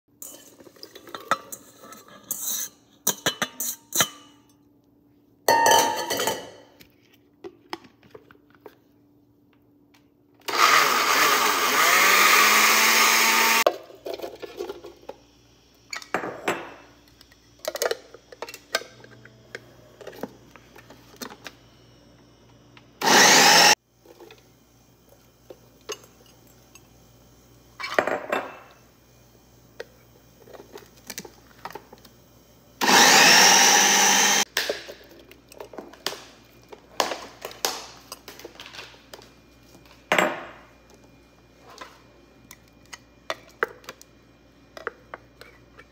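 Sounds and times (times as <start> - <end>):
food processor motor: 10.4 - 13.7, 23.0 - 23.8, 32.8 - 34.4.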